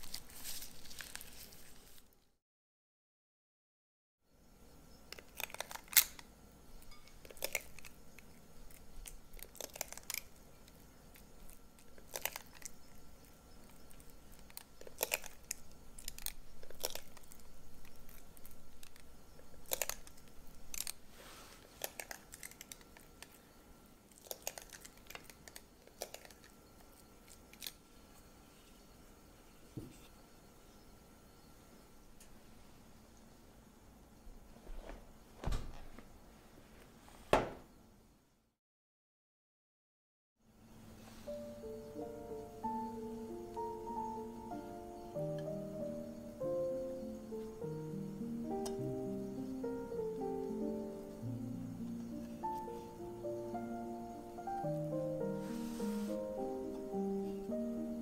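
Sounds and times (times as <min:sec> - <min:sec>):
scoop clicking and scraping: 0:07.0 - 0:13.0, 0:13.6 - 0:21.0, 0:21.6 - 0:23.4, 0:24.1 - 0:27.8.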